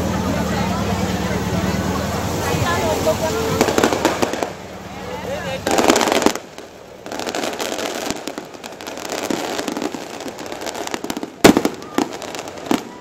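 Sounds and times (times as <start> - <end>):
firecrackers crackling: 0.0 - 13.0
loud firecracker bang: 3.4 - 4.7, 5.6 - 13.0.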